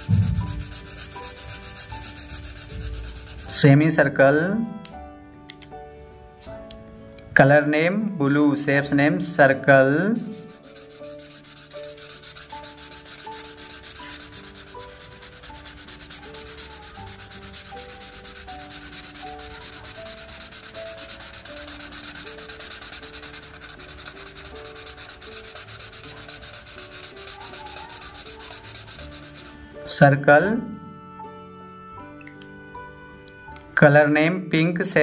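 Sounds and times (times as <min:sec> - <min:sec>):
marker scribbling on paper: 0:00.0 - 0:03.6, 0:10.1 - 0:29.7
soft background melody: 0:00.0 - 0:35.0.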